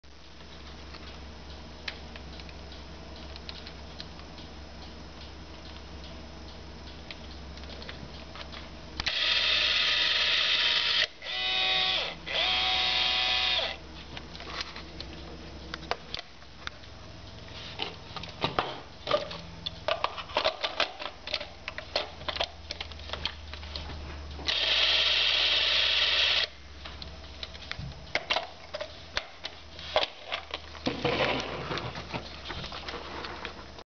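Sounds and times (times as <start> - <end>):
movie camera motor whirring: 9.0 - 13.8, 24.5 - 26.6.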